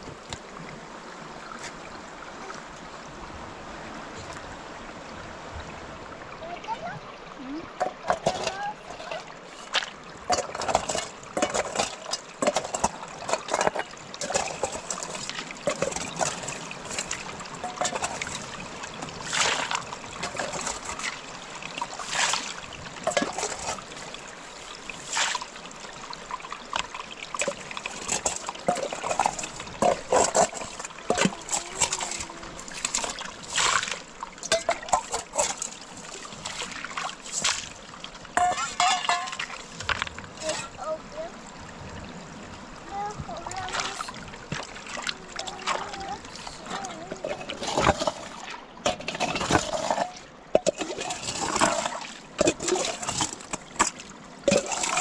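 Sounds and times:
water scooped and poured splashing: 0:08.1 - 0:24.2, 0:24.8 - 0:25.6, 0:26.3 - 0:41.0, 0:43.4 - 0:55.0.

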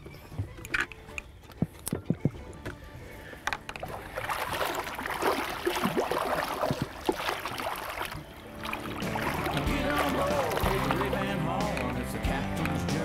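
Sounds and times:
fish splashing in water: 0:03.8 - 0:12.1.

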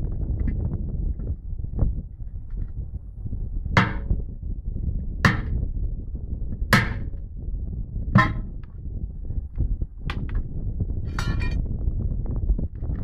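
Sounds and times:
hammer blows on metal: 0:03.8 - 0:04.2, 0:06.7 - 0:07.2, 0:08.1 - 0:08.6.

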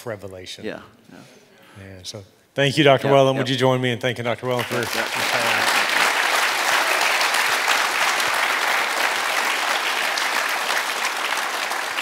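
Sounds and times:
audience applauding: 0:04.5 - 0:12.0.

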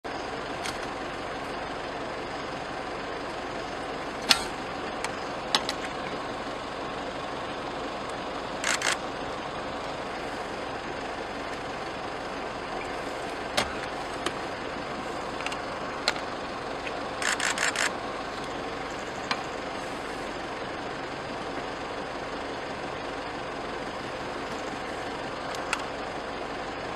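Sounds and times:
vehicle engine idling: 0:00.0 - 0:26.9
sharp clicks and knocks: 0:04.2 - 0:06.0.

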